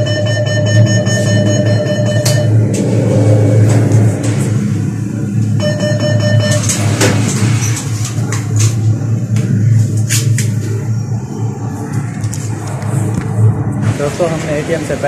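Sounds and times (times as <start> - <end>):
cash machine beep: 0.0 - 2.6, 5.5 - 7.3
steady low hum: 0.0 - 15.0.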